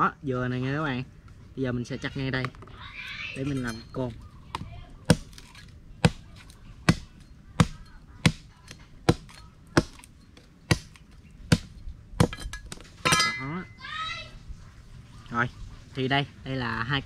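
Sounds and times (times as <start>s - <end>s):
machete chopping bamboo: 4.5s - 13.4s.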